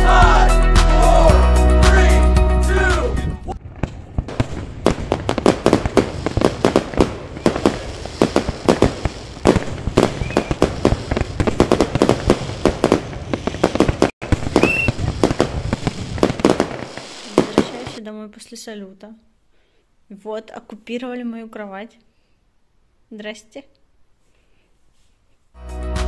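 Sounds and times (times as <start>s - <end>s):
fireworks bangs and cracks: 3.5s - 18.0s.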